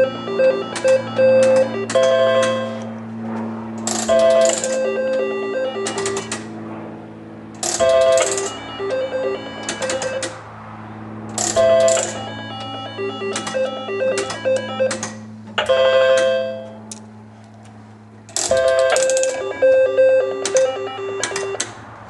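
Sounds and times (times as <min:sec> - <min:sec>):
short electronic beep tones: 0:00.0 - 0:02.8
steady electrical hum: 0:00.0 - 0:22.0
slot machine spin burst: 0:04.0 - 0:06.4, 0:07.6 - 0:10.4, 0:11.4 - 0:15.1
reels stopping clicks: 0:18.3 - 0:19.6.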